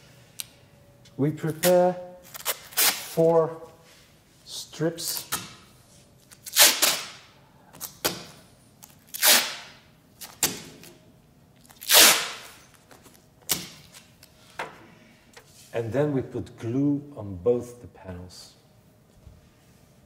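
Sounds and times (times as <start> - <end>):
adhesive tape tearing: 1.5 - 3.4, 6.3 - 8.2, 8.8 - 10.9, 11.6 - 12.8.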